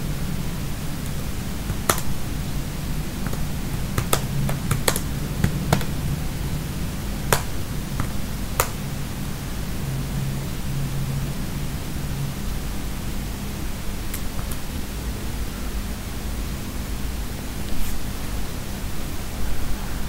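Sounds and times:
steady low hum: 0:00.0 - 0:20.0
computer keyboard keystrokes: 0:01.7 - 0:02.2, 0:03.2 - 0:06.0, 0:07.3 - 0:08.8.

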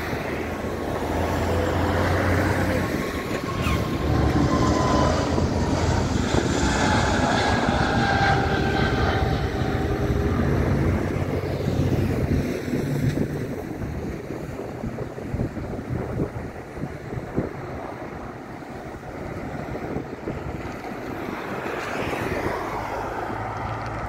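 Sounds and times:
jet engines at takeoff: 0:00.0 - 0:24.0.

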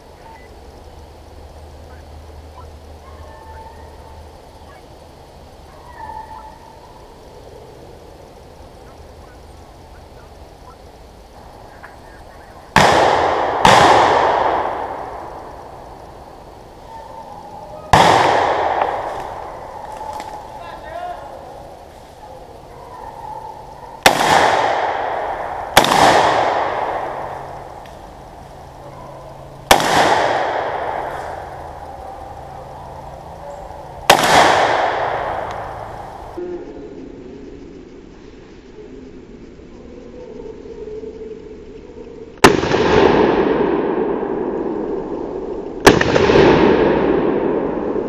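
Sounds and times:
loud gunshots with echo: 0:12.7 - 0:15.6, 0:17.9 - 0:20.2, 0:24.0 - 0:27.6, 0:29.7 - 0:31.5, 0:34.1 - 0:36.2, 0:42.4 - 0:44.8, 0:45.8 - 0:48.0.

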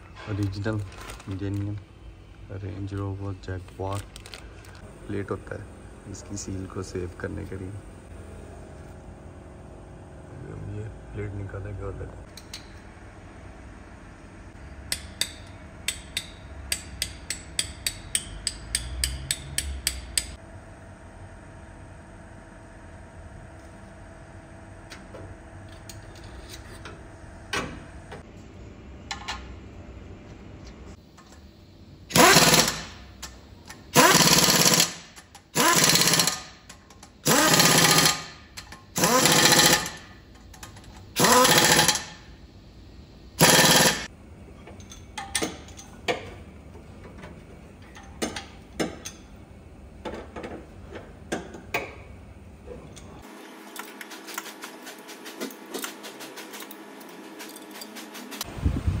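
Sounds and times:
impact wrench hammering: 0:14.9 - 0:20.4, 0:32.1 - 0:42.2, 0:43.4 - 0:44.1
tools and metal parts clinking: 0:32.2 - 0:42.2, 0:43.4 - 0:46.4, 0:47.8 - 0:49.3, 0:56.5 - 0:58.2.

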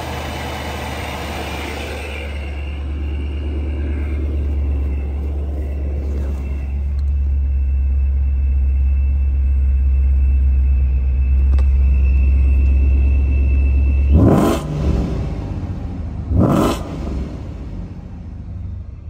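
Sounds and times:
loud engine bursts: 0:00.0 - 0:08.4, 0:10.6 - 0:18.1
car engine humming: 0:00.0 - 0:19.0
faint high whine: 0:00.7 - 0:16.2.

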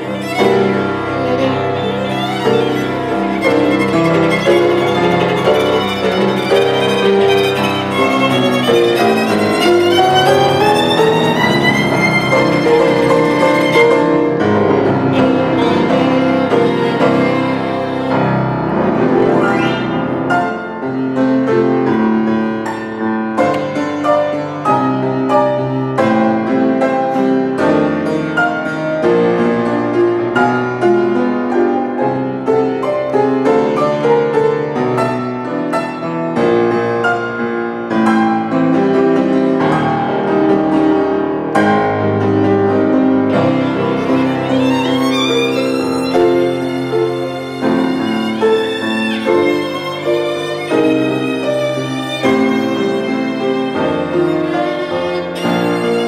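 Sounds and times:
held violin note: 0:00.0 - 0:21.0, 0:43.3 - 0:56.0
grand piano classical solo: 0:00.0 - 0:56.0.

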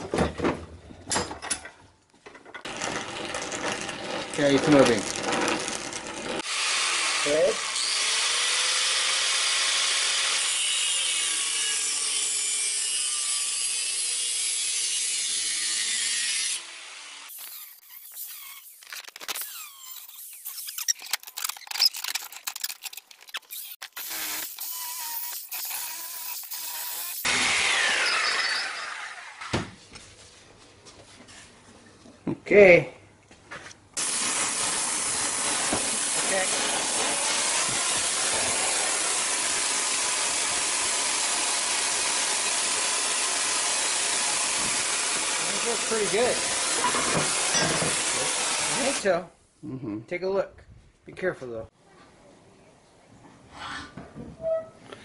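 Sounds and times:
angle grinder whirring: 0:02.6 - 0:29.6, 0:34.0 - 0:49.0
metal pipe pieces clicking: 0:20.4 - 0:23.8.

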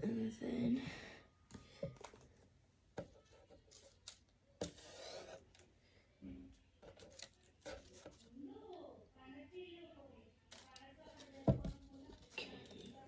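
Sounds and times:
paper strips being handled: 0:06.8 - 0:08.4, 0:10.5 - 0:13.0.

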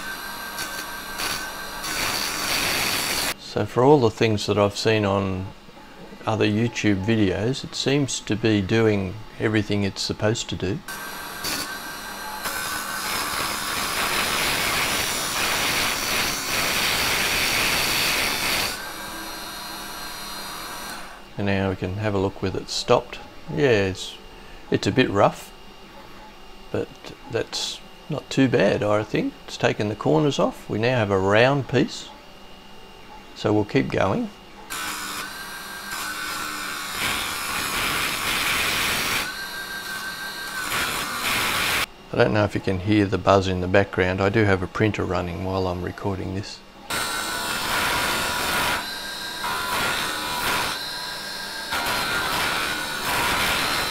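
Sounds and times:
file scraping spinning wood: 0:00.0 - 0:03.4, 0:10.9 - 0:21.2, 0:34.8 - 0:41.9, 0:46.9 - 0:53.9
wood lathe whining: 0:00.0 - 0:03.4, 0:10.9 - 0:21.3, 0:34.7 - 0:41.9, 0:46.9 - 0:53.9.

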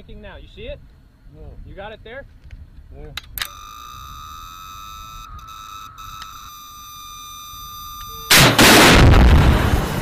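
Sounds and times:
steady high tone: 0:03.4 - 0:08.4
missile launch blast: 0:08.3 - 0:10.0.

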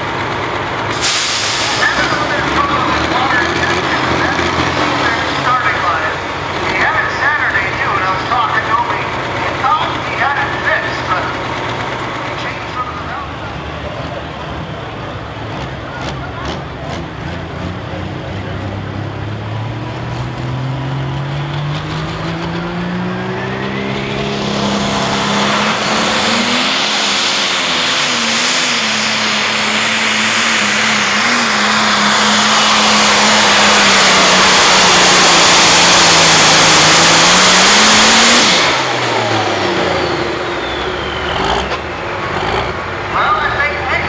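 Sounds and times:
diesel tractor engine at full throttle: 0:00.0 - 0:44.0
high whine winding down: 0:22.1 - 0:41.8.

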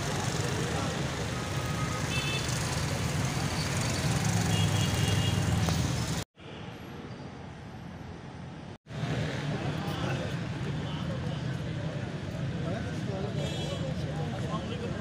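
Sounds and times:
motorcycles passing: 0:00.0 - 0:06.2
street traffic rumble: 0:00.0 - 0:15.0.

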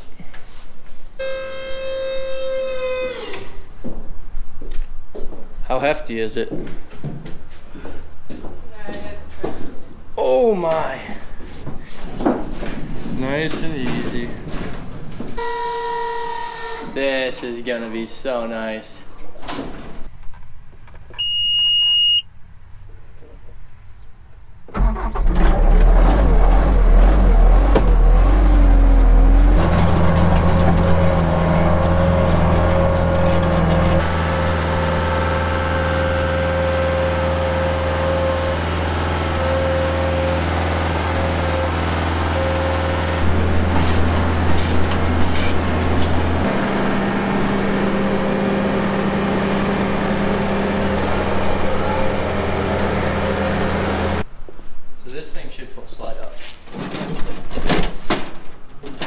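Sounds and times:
short electronic beep: 0:01.2 - 0:02.7, 0:21.2 - 0:22.3
diesel engine cranking and running: 0:24.7 - 0:54.3.

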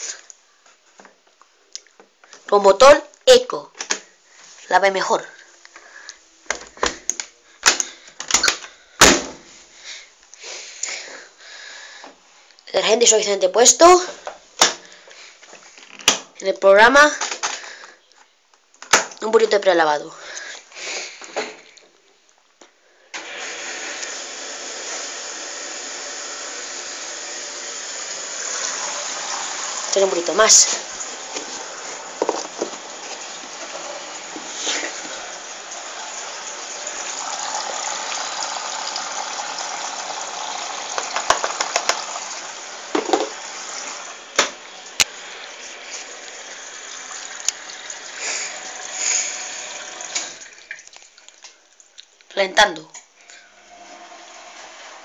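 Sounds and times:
water rushing into washing machine: 0:23.2 - 0:50.9, 0:53.6 - 0:55.0.

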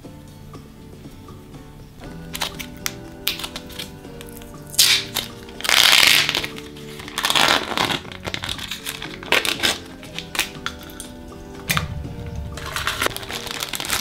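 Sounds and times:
soft background music: 0:00.0 - 0:14.0
plastic packaging crinkling: 0:02.2 - 0:11.1, 0:12.6 - 0:14.0.

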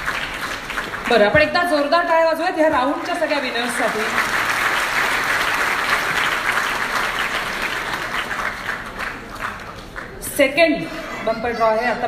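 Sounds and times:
audience applause: 0:00.0 - 0:01.8, 0:02.8 - 0:10.2.

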